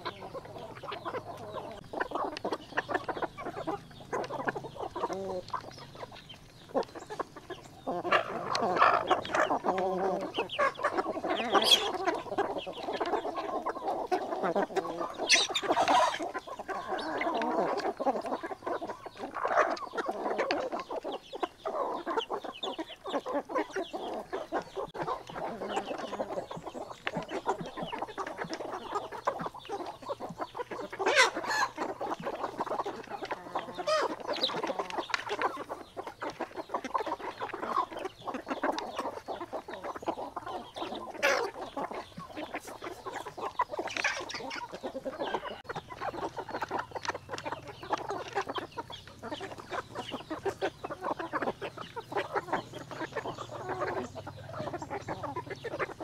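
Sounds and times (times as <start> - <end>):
chickens clucking: 0.0 - 56.0
chickens squawking: 0.0 - 56.0.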